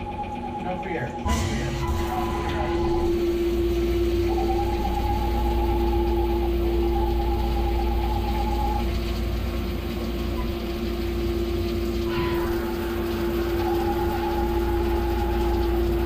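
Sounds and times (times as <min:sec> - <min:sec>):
high tone: 0:00.0 - 0:09.0
milling machine spindle whine: 0:00.0 - 0:16.0.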